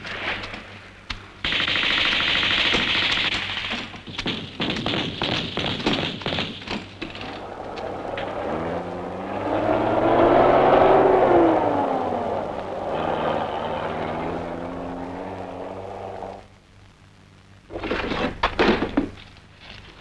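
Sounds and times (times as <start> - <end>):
loud sharp bangs: 1.5 - 8.4
car engine driving past: 7.2 - 16.5.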